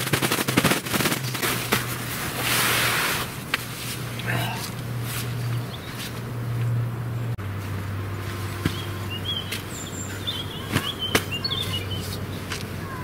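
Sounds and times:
bedding clicks and rustles: 0.0 - 6.7
small birds chirping: 4.1 - 7.4, 8.1 - 13.0.

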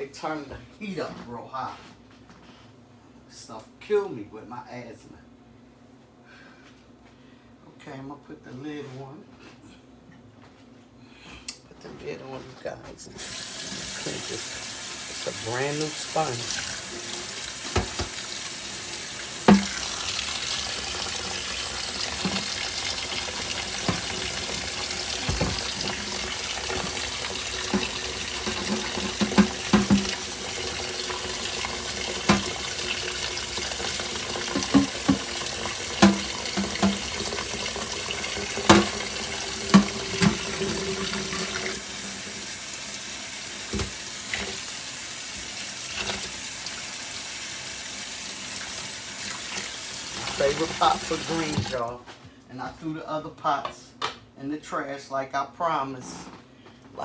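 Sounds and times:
faucet running into metal sink: 13.2 - 51.9
sponge scrubbing pot lid: 21.8 - 30.3, 39.7 - 41.6.

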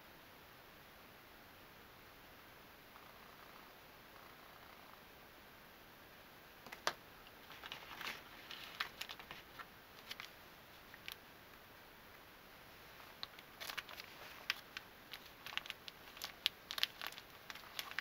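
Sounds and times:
plastic bag crinkling: 7.4 - 11.2, 13.0 - 18.0.

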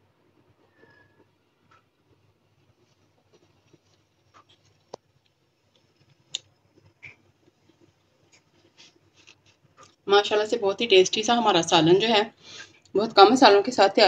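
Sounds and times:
small clicks and taps: 3.7 - 10.0.

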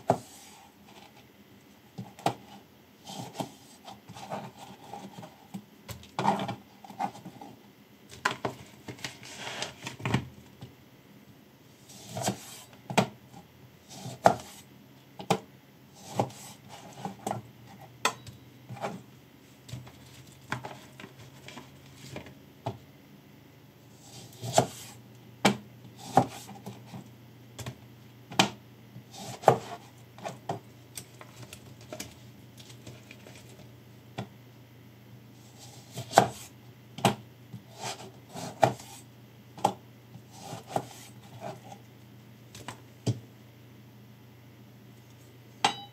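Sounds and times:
knife scraping board: 2.0 - 5.4, 11.8 - 12.8, 13.8 - 14.7, 16.0 - 17.9, 24.0 - 25.0, 26.0 - 27.0, 29.1 - 30.4, 35.4 - 36.5, 37.6 - 39.0, 40.3 - 41.8
knife chopping on plastic board: 12.0 - 13.2, 13.9 - 14.6, 15.2 - 17.4, 24.1 - 27.0, 27.6 - 30.6, 35.7 - 39.0, 39.6 - 41.6.

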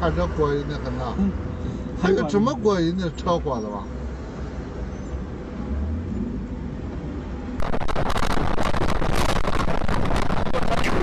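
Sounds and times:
road noise: 0.0 - 11.0
vehicle engine rumble: 0.0 - 11.0
wind rushing on microphone: 7.6 - 11.0.

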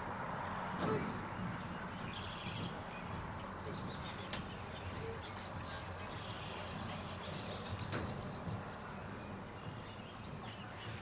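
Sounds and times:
outdoor background hum: 0.0 - 11.0
birds chirping: 0.2 - 11.0.

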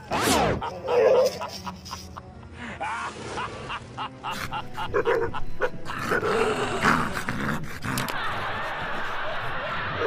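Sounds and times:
dog barking: 0.9 - 1.5.

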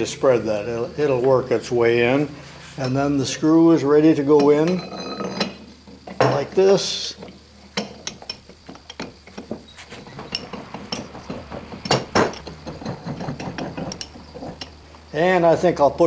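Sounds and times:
vise screw clicking and clinking: 4.2 - 15.4.

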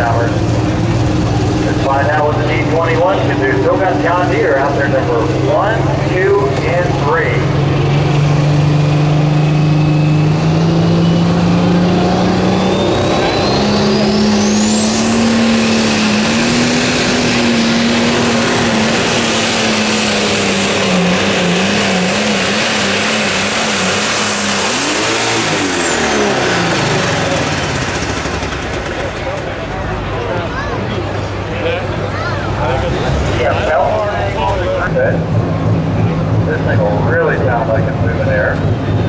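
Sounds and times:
tractor engine under load: 0.0 - 39.0
turbocharger whistle: 9.8 - 19.2.

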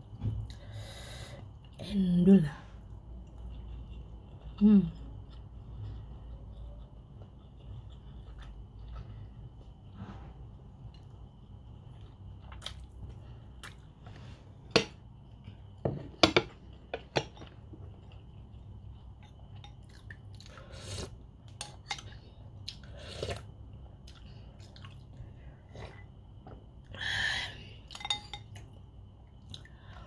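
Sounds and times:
chewing: 3.1 - 9.7, 10.9 - 13.9, 24.0 - 25.2
spoon clinking on ceramic dishes: 27.9 - 28.6.

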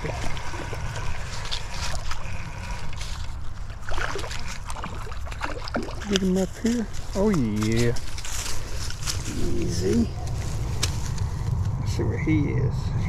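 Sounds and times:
wind rumble on microphone: 7.9 - 13.0.

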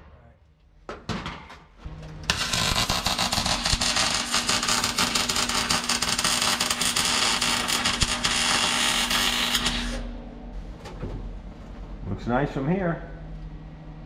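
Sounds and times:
welding arc crackling sizzle: 2.3 - 10.1.

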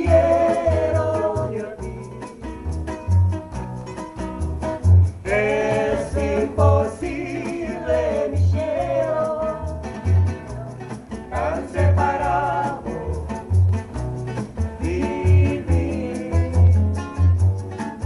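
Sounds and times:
woman singing: 0.0 - 2.2, 6.4 - 9.8
plucked double bass: 0.0 - 18.0
strummed acoustic guitar: 0.0 - 18.0.

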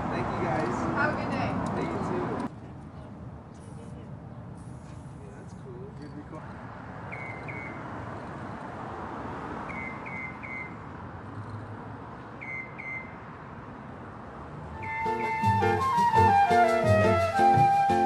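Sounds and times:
street traffic noise: 0.0 - 18.0
flute melody music: 14.8 - 18.0.

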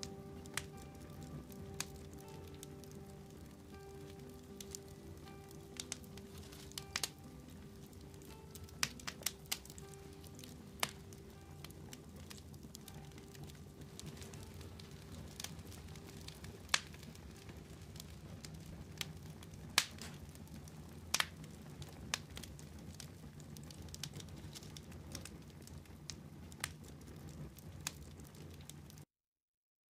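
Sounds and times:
fire crackling and popping: 0.0 - 29.1
fire low rumble: 0.0 - 29.1.

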